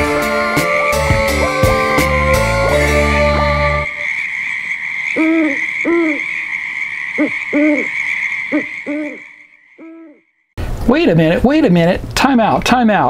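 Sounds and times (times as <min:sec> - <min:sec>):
high-pitched drone: 0:00.0 - 0:04.2
owl-like hooting: 0:00.0 - 0:10.3.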